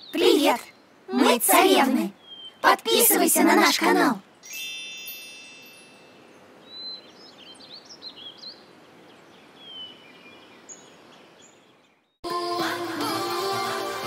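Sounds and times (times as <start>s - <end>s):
birds chirping: 0.0s - 3.6s, 5.6s - 12.2s
soft outdoor hiss: 0.0s - 14.0s
bright chime: 4.4s - 6.4s.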